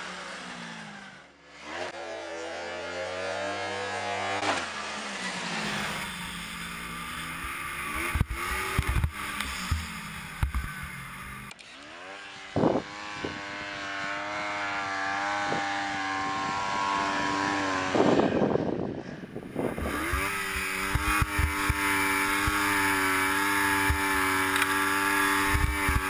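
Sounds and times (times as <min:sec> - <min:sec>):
snowmobile engine revving: 0:00.0 - 0:26.0
sharp thumps: 0:08.0 - 0:11.6, 0:19.5 - 0:23.0.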